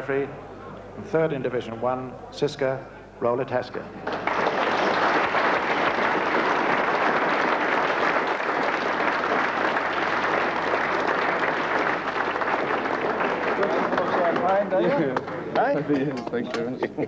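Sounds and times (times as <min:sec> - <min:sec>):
people applauding: 0:04.0 - 0:16.7.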